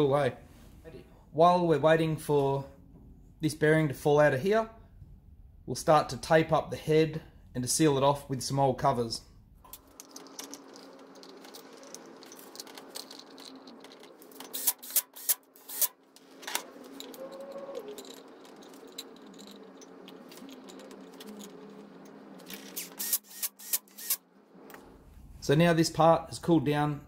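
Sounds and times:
metal engine parts clinking: 9.7s - 23.1s.

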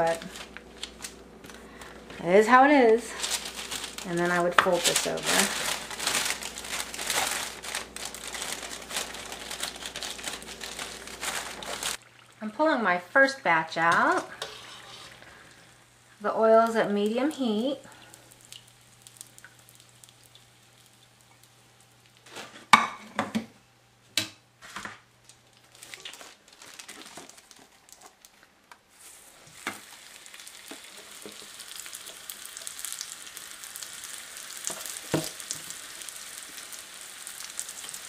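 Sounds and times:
oil sizzling in a pot: 2.4s - 12.3s, 14.0s - 23.0s, 28.9s - 38.0s.

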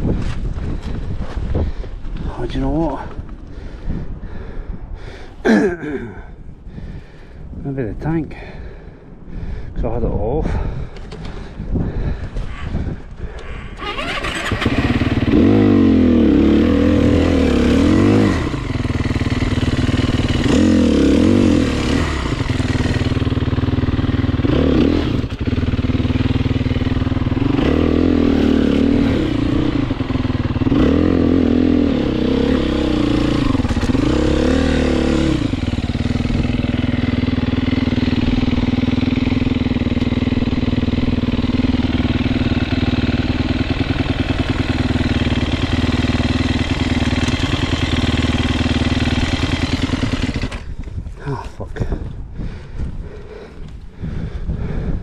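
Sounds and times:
dirt bike engine revving: 13.8s - 50.8s.

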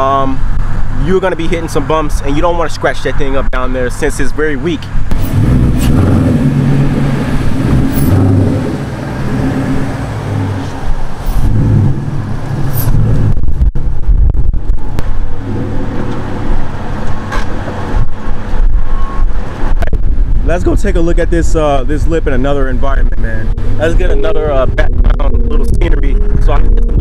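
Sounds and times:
car engine running: 22.6s - 27.0s.

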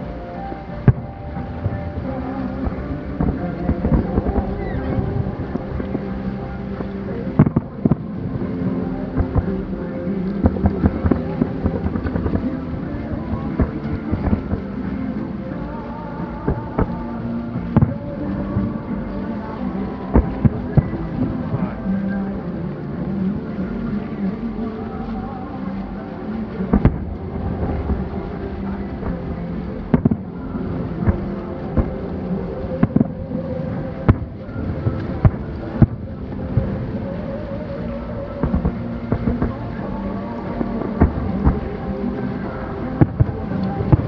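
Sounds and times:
steady low rumble: 0.0s - 44.0s
distant fireworks booms: 26.7s - 32.1s.

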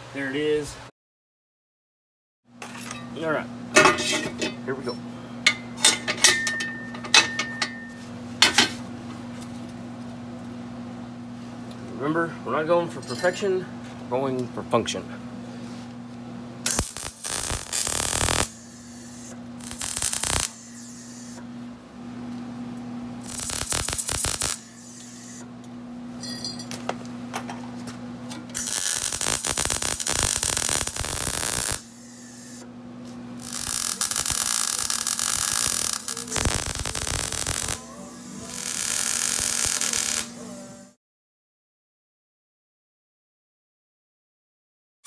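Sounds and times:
steady electrical hum: 2.5s - 41.0s
welder arc crackling: 16.6s - 21.4s, 23.2s - 25.4s, 28.6s - 32.6s, 33.4s - 40.6s.

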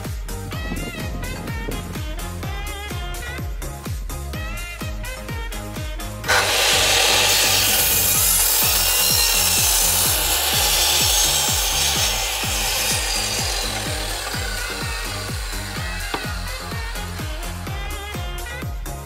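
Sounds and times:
background music with steady beat: 0.0s - 19.0s
mitre saw cutting wood: 6.3s - 18.6s.

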